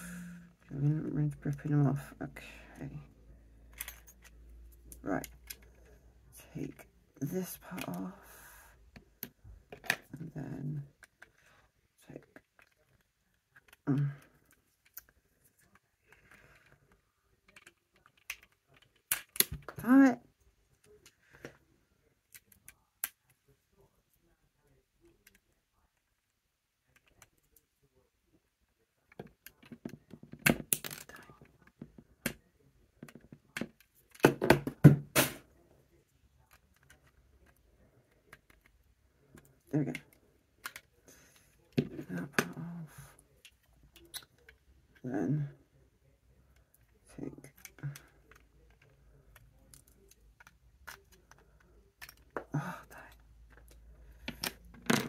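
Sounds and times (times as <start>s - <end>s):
plastic bricks snapping apart: 18.2s - 19.7s.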